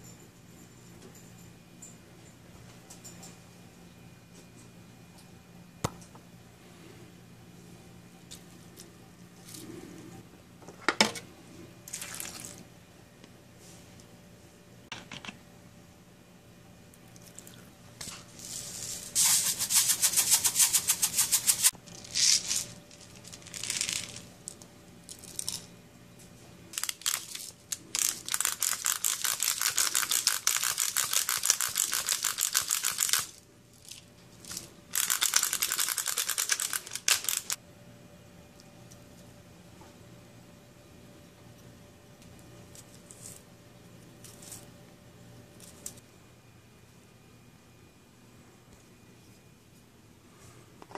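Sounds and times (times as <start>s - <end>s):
pepper grinder grating: 18.4s - 24.2s, 26.8s - 37.6s.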